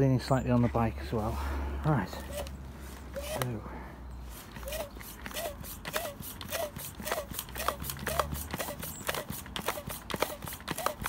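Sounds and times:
foot pump clacking and squeaking: 0:03.1 - 0:03.5, 0:04.5 - 0:11.0.

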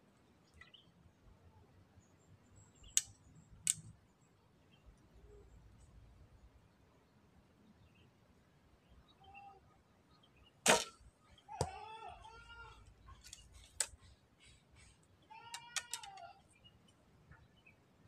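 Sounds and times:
small clicks: 0:02.8 - 0:03.9, 0:15.5 - 0:16.4
bowstring snapping: 0:10.7 - 0:11.0.

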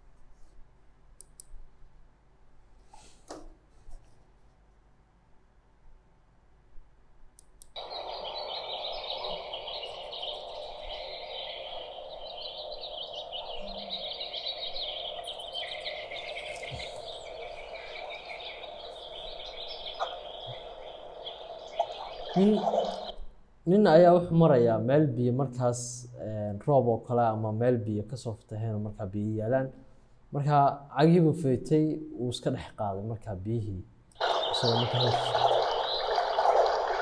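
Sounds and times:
steady outdoor background noise: 0:00.0 - 0:32.5, 0:33.6 - 0:37.0
birds chirping: 0:07.7 - 0:25.5, 0:34.2 - 0:37.0.

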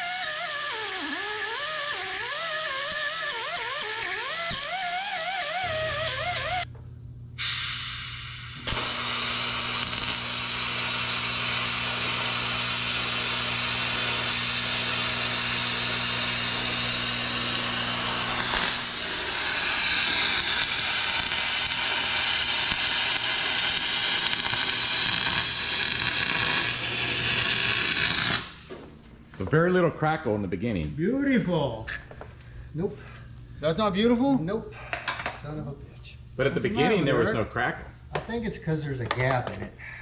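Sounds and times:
welding arc hissing: 0:00.0 - 0:06.7, 0:07.4 - 0:28.7
low electrical hum: 0:00.0 - 0:40.0.

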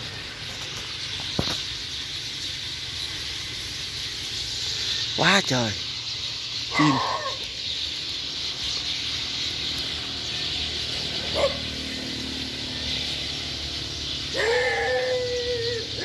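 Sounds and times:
flock of sparrows chirping: 0:00.0 - 0:16.0
animal call: 0:06.7 - 0:07.6, 0:14.2 - 0:16.0.

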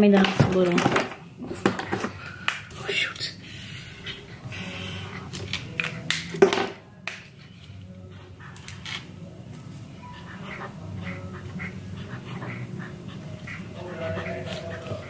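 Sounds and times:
marker squeaking on paper: 0:10.0 - 0:15.0.

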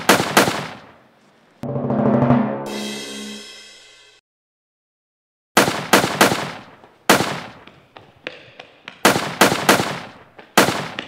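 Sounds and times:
echoing gunshots: 0:00.0 - 0:00.9, 0:05.6 - 0:07.6, 0:09.0 - 0:11.0.

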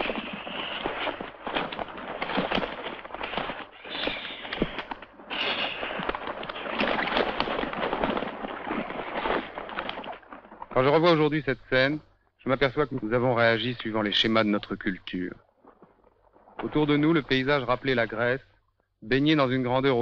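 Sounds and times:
vultures hissing and calling: 0:00.0 - 0:01.4, 0:03.2 - 0:07.4
clicks and knocks of jostling birds: 0:00.0 - 0:11.4.

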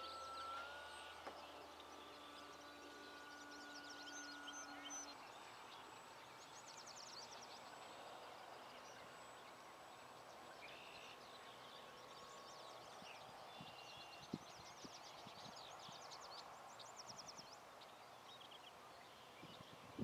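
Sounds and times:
faint steady hum: 0:00.0 - 0:20.0
small birds chirping: 0:00.0 - 0:20.0.

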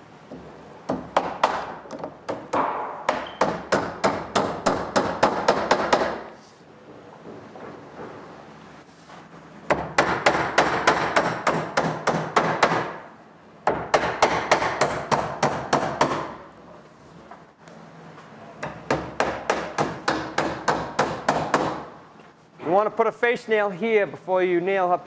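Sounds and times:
hammer driving nails into wood: 0:00.9 - 0:06.3, 0:09.7 - 0:13.0, 0:13.7 - 0:16.4.

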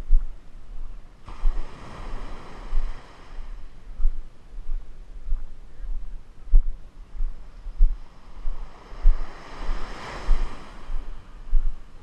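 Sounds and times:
wave washing up beach: 0:01.2 - 0:03.6, 0:08.1 - 0:12.0.

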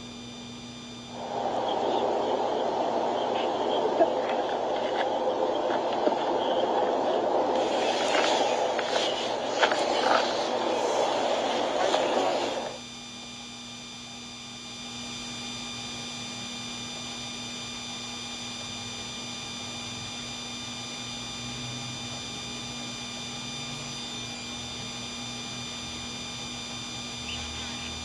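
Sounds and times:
steady hum: 0:00.0 - 0:20.2
high whining tones: 0:01.0 - 0:12.8
even hiss: 0:01.1 - 0:12.8.

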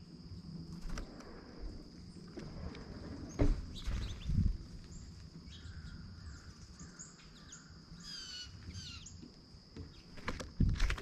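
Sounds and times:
wild birds calling: 0:03.0 - 0:10.3.

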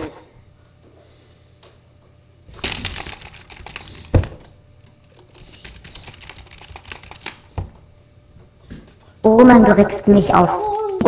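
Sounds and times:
keyboard keys clicking: 0:02.6 - 0:07.7.

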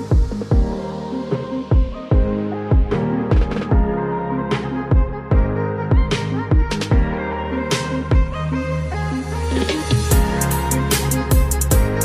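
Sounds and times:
electronic music: 0:00.0 - 0:12.0
deep kick drum: 0:00.1 - 0:00.8, 0:01.7 - 0:04.0, 0:04.9 - 0:07.2, 0:08.1 - 0:08.4, 0:10.1 - 0:10.5, 0:11.3 - 0:12.0.

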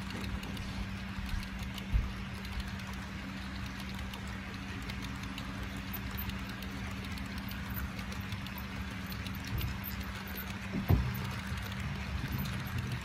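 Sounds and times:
model train cars rolling: 0:00.0 - 0:13.0
wheels clicking on rails: 0:00.0 - 0:13.0.

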